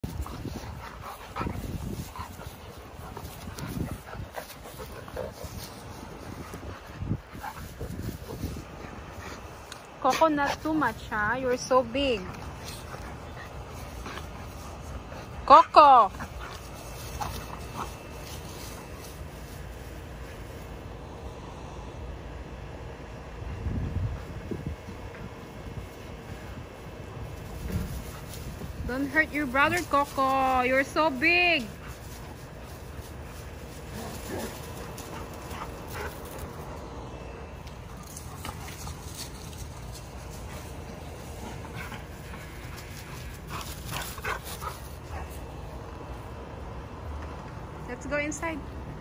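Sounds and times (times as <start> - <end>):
dogs growling and yipping: 33.7 - 36.6.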